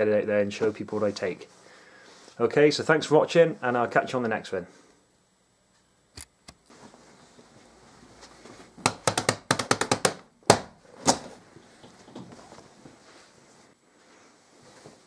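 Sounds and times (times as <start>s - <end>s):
hands slapping a rucksack: 8.8s - 12.4s.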